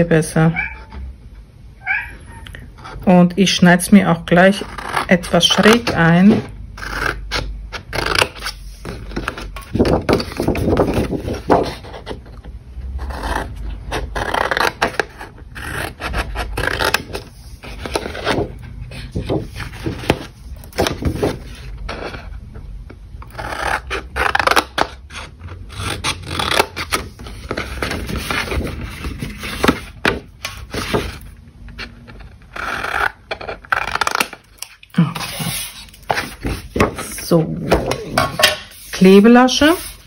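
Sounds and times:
scissors snipping cardstock: 0:04.5 - 0:11.9
paper sheet rubbing and scraping: 0:08.0 - 0:12.2, 0:14.1 - 0:22.2, 0:25.7 - 0:31.9, 0:35.1 - 0:40.0.

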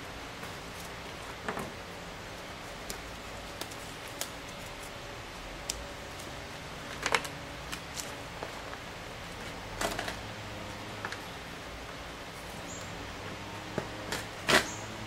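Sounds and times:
gloved hands rustling: 0:00.3 - 0:09.8.

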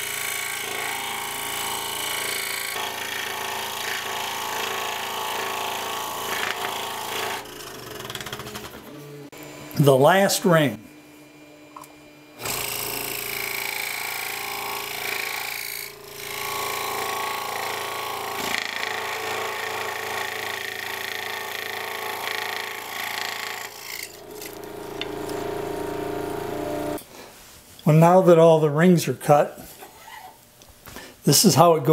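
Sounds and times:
scroll saw cutting wood: 0:00.0 - 0:08.8, 0:12.4 - 0:27.0.

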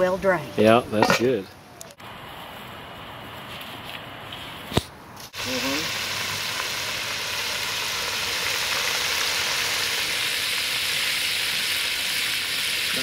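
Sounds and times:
hot oil sizzling: 0:05.3 - 0:13.0.

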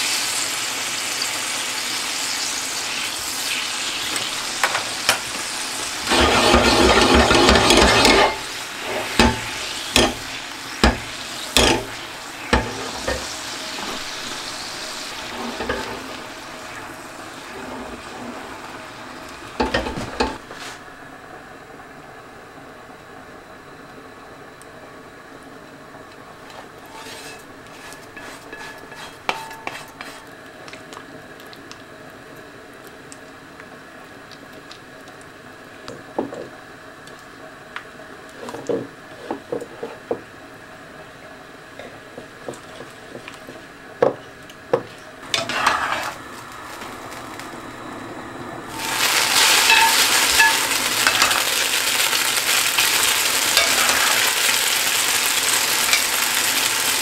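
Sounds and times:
loud sizzle from hot skillet: 0:00.0 - 0:20.8, 0:26.8 - 0:30.4, 0:42.3 - 0:47.8, 0:48.6 - 0:57.0
spoon scraping ceramic plate: 0:26.9 - 0:30.2, 0:45.4 - 0:46.2.

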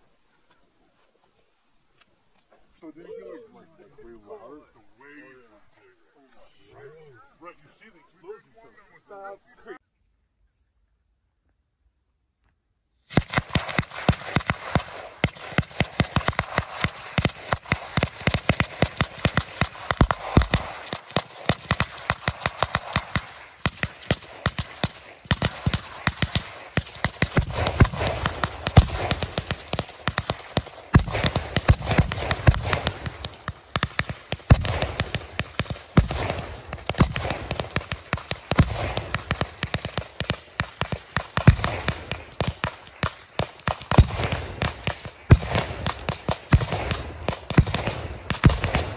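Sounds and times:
fireworks crackling: 0:13.0 - 0:48.9.

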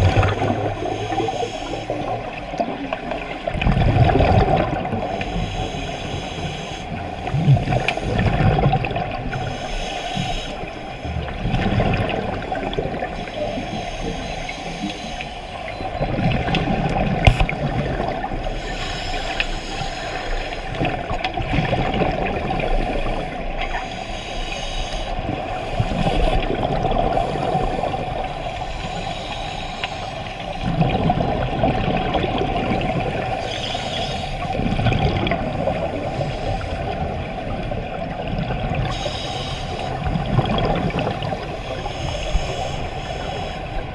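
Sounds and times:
air bubbles burbling underwater: 0:00.0 - 0:01.3, 0:02.0 - 0:05.0, 0:07.2 - 0:09.4, 0:11.2 - 0:13.2, 0:15.7 - 0:18.4, 0:20.8 - 0:23.2, 0:26.3 - 0:28.0, 0:30.6 - 0:33.4, 0:34.5 - 0:36.1, 0:39.9 - 0:41.6.

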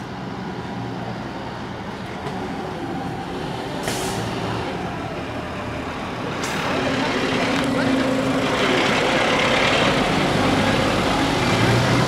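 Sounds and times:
fire engine diesel engines: 0:00.0 - 0:12.0.

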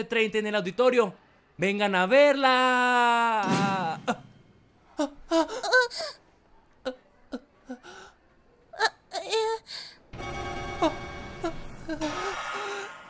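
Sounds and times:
person laughing and gasping: 0:05.0 - 0:06.2, 0:10.8 - 0:13.0.

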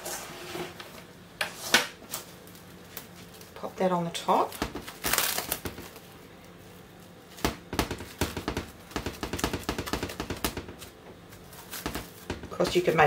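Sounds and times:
cling film rustle: 0:04.4 - 0:08.0, 0:09.0 - 0:13.0
cling film crinkling: 0:04.5 - 0:07.1.

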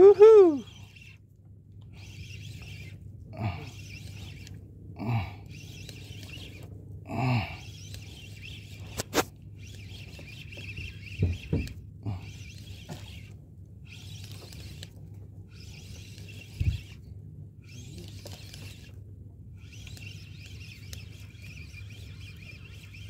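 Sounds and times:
fishing reel cranking: 0:00.0 - 0:01.2, 0:01.9 - 0:19.0, 0:19.6 - 0:23.0
low steady hum: 0:00.0 - 0:23.0
short squeaks: 0:02.0 - 0:03.0, 0:07.7 - 0:14.9, 0:15.5 - 0:17.0, 0:17.6 - 0:18.9, 0:19.6 - 0:23.0.

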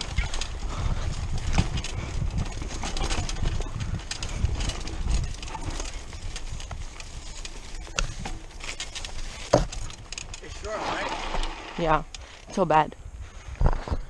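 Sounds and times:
bike knocking and rattling: 0:00.0 - 0:14.0
bike tyres rumbling on dirt: 0:00.0 - 0:14.0.

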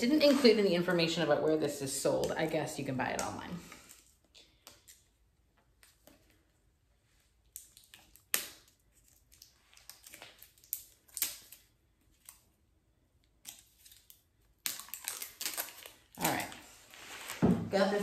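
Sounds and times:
plastic crinkles and clicks: 0:07.4 - 0:12.5, 0:13.2 - 0:17.4.

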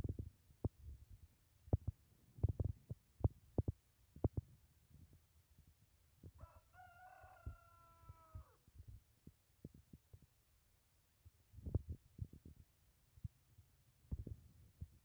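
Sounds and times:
rooster crowing: 0:06.4 - 0:08.6.

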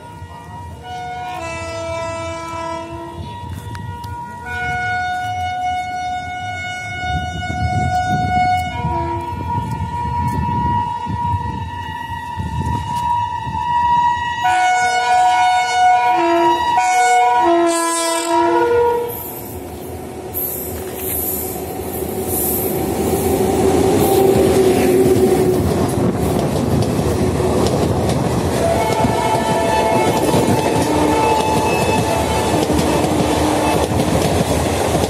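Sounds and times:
locomotive air horn blasts: 0:00.0 - 0:19.4, 0:28.6 - 0:34.0
train rumble and wheel clatter: 0:00.0 - 0:35.0.

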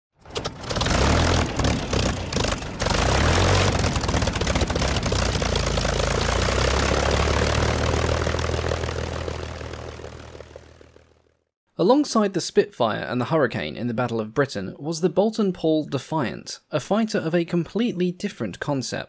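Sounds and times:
propeller aircraft engine droning: 0:00.2 - 0:11.4.

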